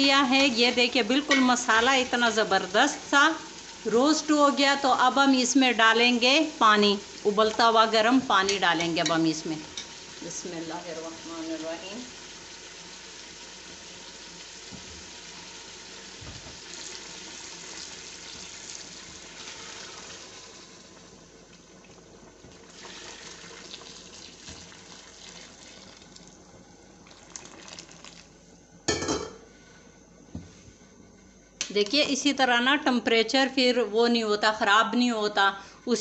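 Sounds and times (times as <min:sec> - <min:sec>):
sizzling: 0:00.0 - 0:36.0
water pouring into hot pot: 0:11.5 - 0:26.4, 0:27.0 - 0:28.3.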